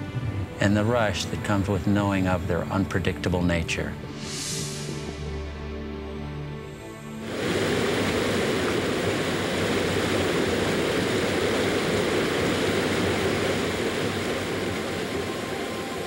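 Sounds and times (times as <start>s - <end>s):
water rushing down rocks: 7.2s - 16.0s.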